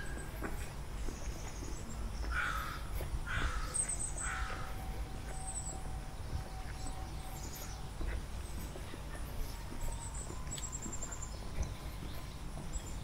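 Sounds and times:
small birds chirping: 0.0s - 13.0s
crow cawing: 2.3s - 4.7s.

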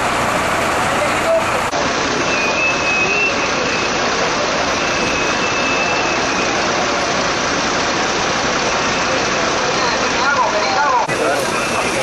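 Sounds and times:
fire truck engine running: 0.0s - 12.0s
faint high whistle: 2.3s - 3.9s, 4.8s - 6.6s.

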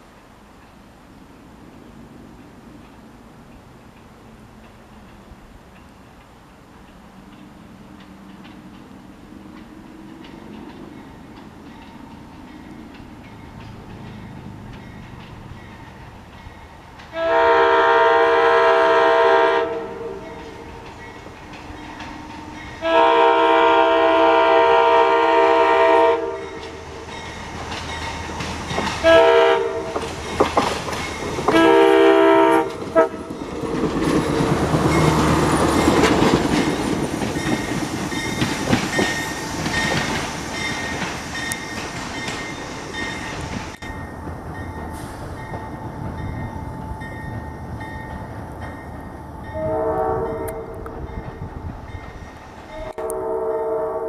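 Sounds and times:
train wheels clicking over rail joints: 1.7s - 17.8s, 18.6s - 24.1s, 25.7s - 49.7s
train chime air horn: 17.2s - 20.6s, 21.7s - 26.9s, 29.0s - 30.0s, 31.5s - 33.3s, 49.4s - 51.4s, 52.7s - 54.0s.

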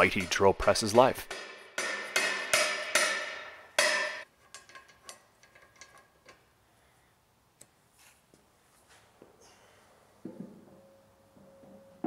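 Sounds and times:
mallet striking cast iron: 1.0s - 4.3s.

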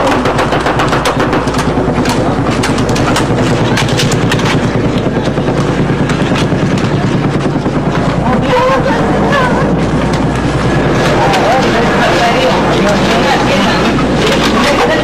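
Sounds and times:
aircraft drone overhead: 0.0s - 15.0s
machine-gun fire: 0.0s - 15.0s.

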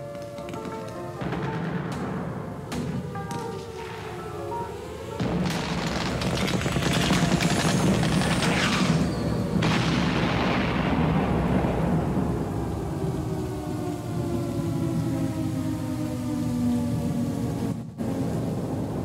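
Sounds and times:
sustained musical tones: 0.0s - 5.4s.

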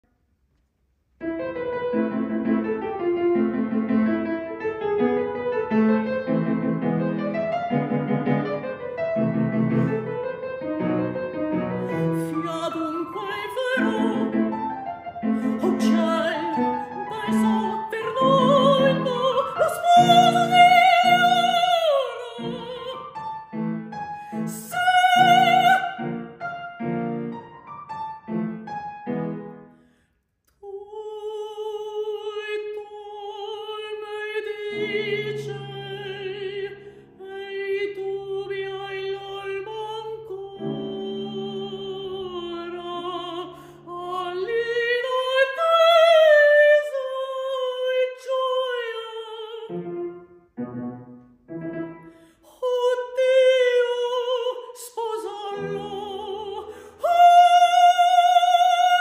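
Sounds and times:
piano: 1.1s - 59.0s
woman singing opera: 11.8s - 23.2s, 24.2s - 26.2s, 30.6s - 50.0s, 52.4s - 59.0s.

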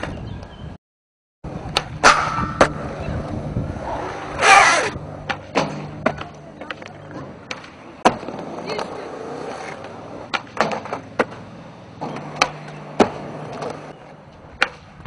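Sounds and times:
skateboard wheels rolling on concrete: 0.0s - 0.8s, 1.4s - 15.0s
skateboard clacks: 1.7s - 3.3s, 4.7s - 15.0s
skateboard scrape: 2.0s - 15.0s.

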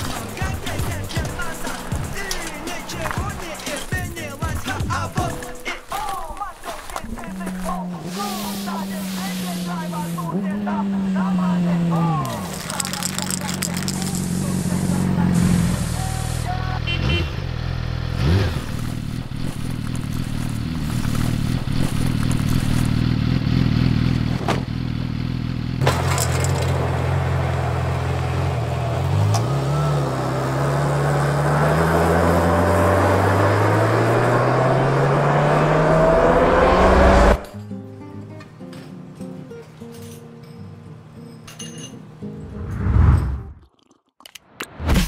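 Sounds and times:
motorcycle engine revving: 6.8s - 37.5s.

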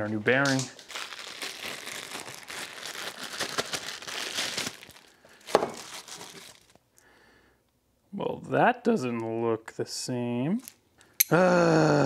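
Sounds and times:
packaging crinkling and tearing: 0.3s - 6.8s.

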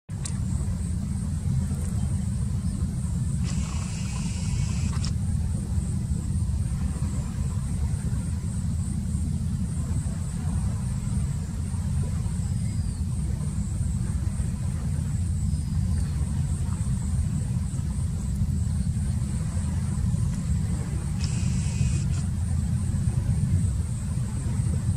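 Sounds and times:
boat engine low rumble: 0.1s - 24.9s.

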